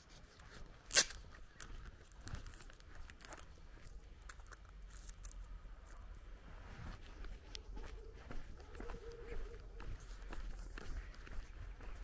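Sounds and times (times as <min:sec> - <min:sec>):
footsteps on dirt road: 0:00.3 - 0:04.6, 0:06.8 - 0:12.0.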